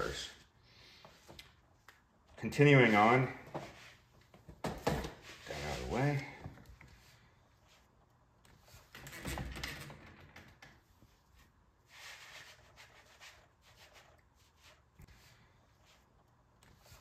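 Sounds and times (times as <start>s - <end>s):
soft rustling: 10.8s - 17.0s.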